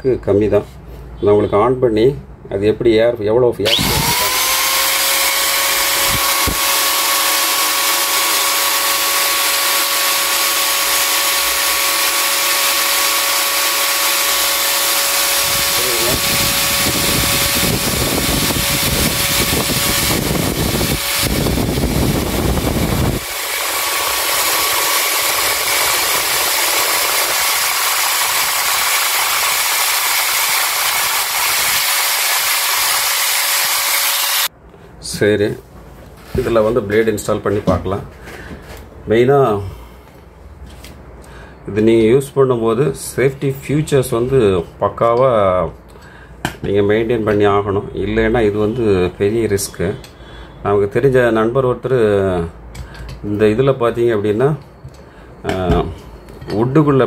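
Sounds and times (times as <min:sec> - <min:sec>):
angle grinder motor whine: 0:03.6 - 0:34.5.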